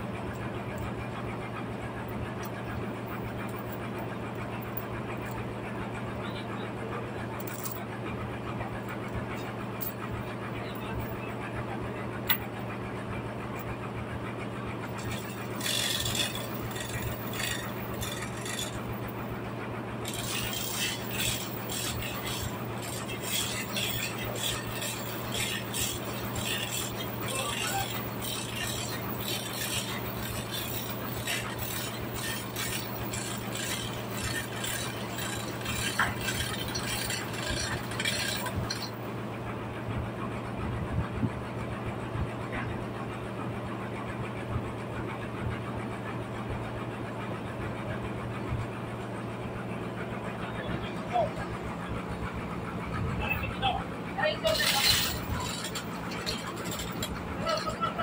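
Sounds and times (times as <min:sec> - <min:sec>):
low machine hum: 0:00.0 - 0:58.0
chain hoist clicking and clinking: 0:00.1 - 0:06.2, 0:07.3 - 0:11.6, 0:13.4 - 0:39.2, 0:51.0 - 0:58.0.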